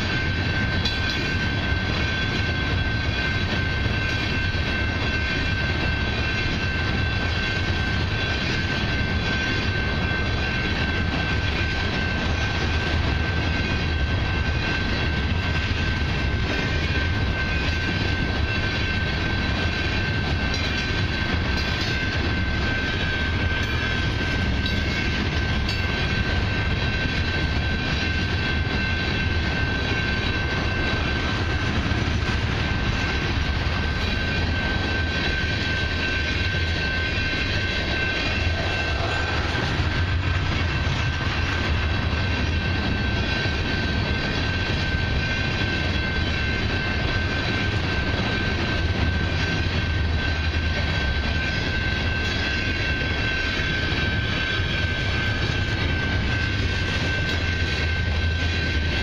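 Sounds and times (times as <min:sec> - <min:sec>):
train wheels rumbling on rail: 0:00.0 - 0:59.0
steady high tone: 0:16.8 - 0:59.0.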